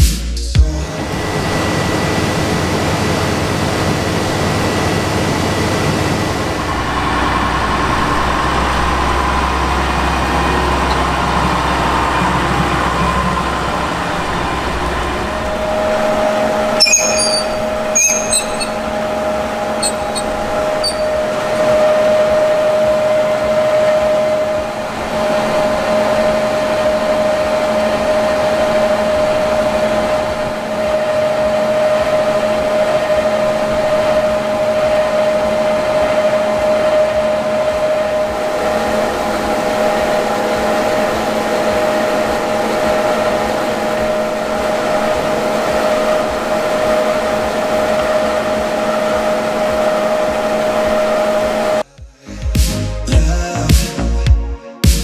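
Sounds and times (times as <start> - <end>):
conveyor belts humming: 1.0 - 51.8.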